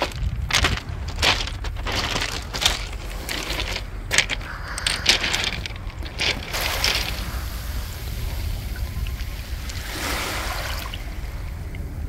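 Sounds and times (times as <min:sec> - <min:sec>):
pebbles rattling and clicking: 0:00.0 - 0:09.9
steady low rumble: 0:00.0 - 0:12.0
waves washing over pebbles: 0:00.0 - 0:12.0.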